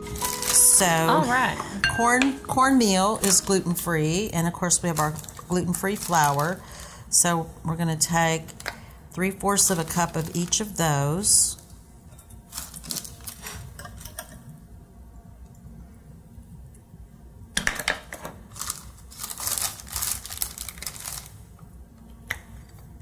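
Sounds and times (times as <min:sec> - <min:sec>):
plastic bag crinkling: 0:00.0 - 0:01.1, 0:02.9 - 0:06.8, 0:09.5 - 0:10.9, 0:12.5 - 0:13.6, 0:18.4 - 0:21.5.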